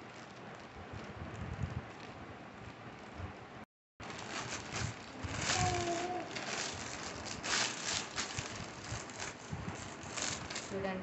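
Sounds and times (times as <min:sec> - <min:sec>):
plastic mailer crinkling: 0:04.0 - 0:11.0.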